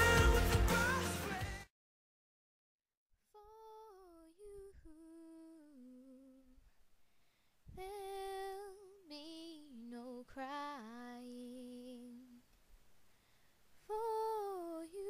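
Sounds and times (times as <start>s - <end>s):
pop song with vocals: 0.0s - 1.7s, 7.7s - 12.5s, 13.8s - 15.0s
person humming softly: 3.4s - 6.7s.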